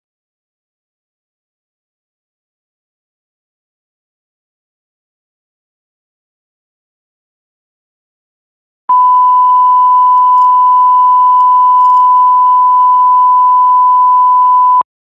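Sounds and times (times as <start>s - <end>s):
steady test tone: 8.9s - 13.4s.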